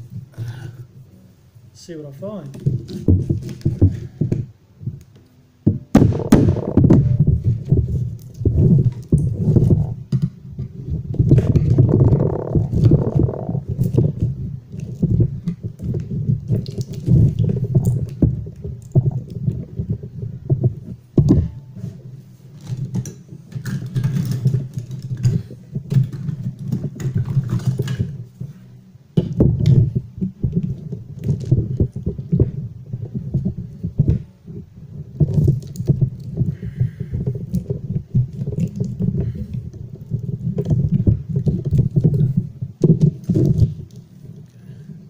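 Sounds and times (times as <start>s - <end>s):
low rumble: 5.7s - 10.1s.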